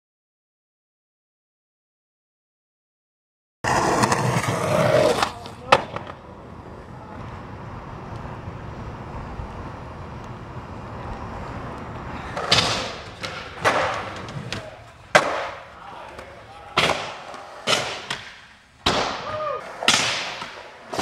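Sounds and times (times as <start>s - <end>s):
skateboard clacking on concrete: 3.7s - 7.4s, 11.0s - 18.5s
low steady rumble: 6.2s - 12.3s.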